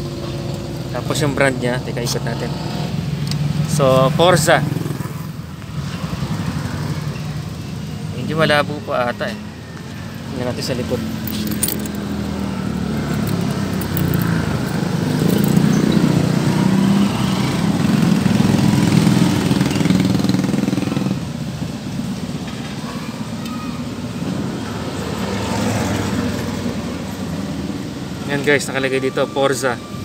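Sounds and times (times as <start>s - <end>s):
vehicle engine running: 9.9s - 20.7s.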